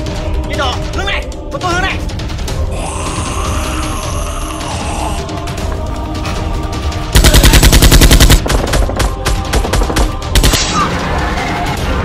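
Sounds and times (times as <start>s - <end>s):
automatic gunfire: 7.2s - 10.6s.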